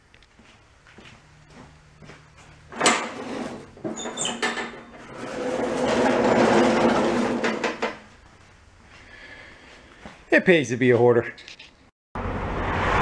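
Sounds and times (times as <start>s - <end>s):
lawn mower rolling and rattling: 2.7s - 8.0s.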